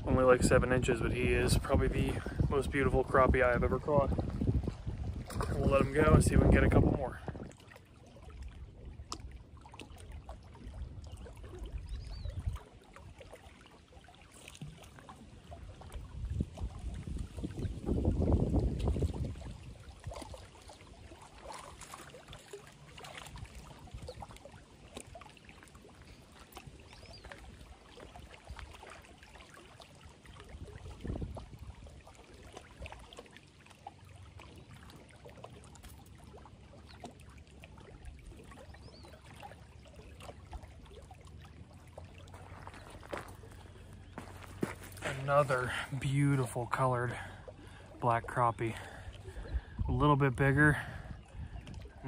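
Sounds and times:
small waves lapping on stones: 7.4s - 50.8s
footsteps on gravel: 42.3s - 46.0s.

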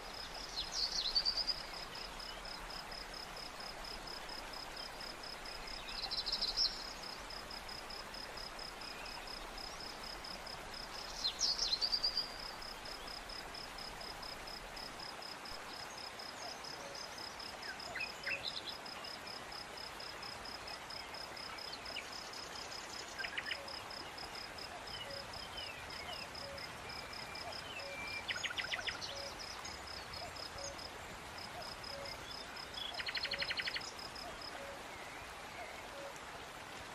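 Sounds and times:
insects chirping: 0.0s - 36.6s.

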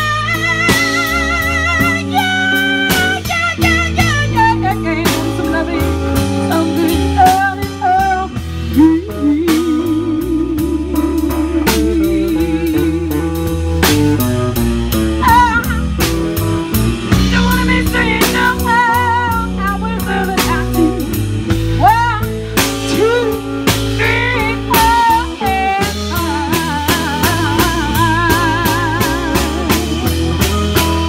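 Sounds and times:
woman singing: 0.0s - 13.5s, 15.2s - 15.9s, 17.2s - 30.1s
drum kit: 0.0s - 31.0s
electric bass: 0.0s - 31.0s
electric guitar: 0.0s - 31.0s.

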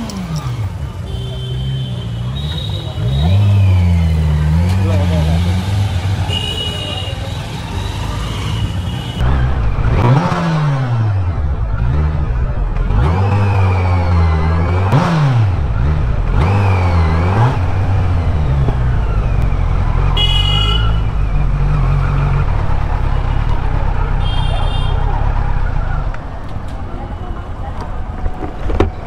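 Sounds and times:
motorcycle engine revving: 0.0s - 26.4s
vehicle horn toots: 1.0s - 3.4s, 6.2s - 7.5s, 20.2s - 21.1s, 24.2s - 25.1s.

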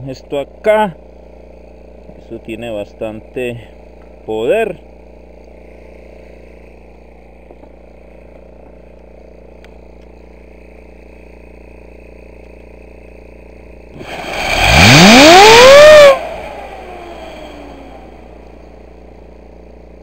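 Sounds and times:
low hum: 3.0s - 20.0s
fan whine climbing in pitch: 6.5s - 20.0s
loud rushing gas blast: 14.0s - 18.3s.

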